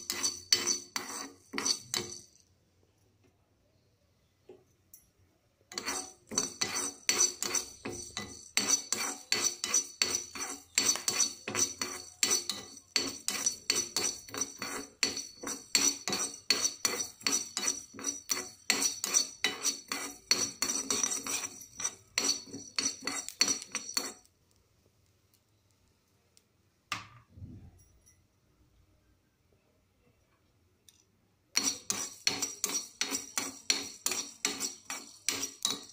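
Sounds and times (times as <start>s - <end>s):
spoon scraping metal pan: 0.0s - 2.4s, 5.7s - 24.3s, 31.5s - 35.9s.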